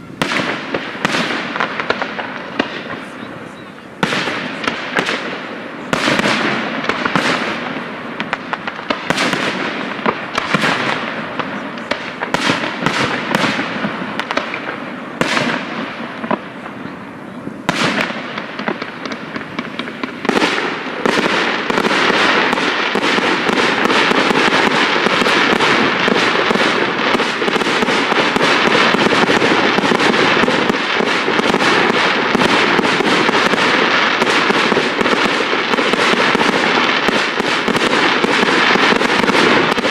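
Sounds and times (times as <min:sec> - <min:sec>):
firework shells bursting: 0:17.7 - 0:39.9.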